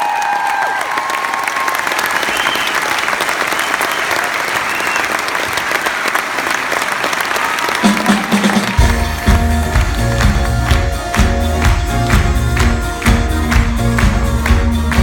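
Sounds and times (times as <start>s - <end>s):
audience applauding: 0.0s - 15.0s
music: 7.8s - 15.0s.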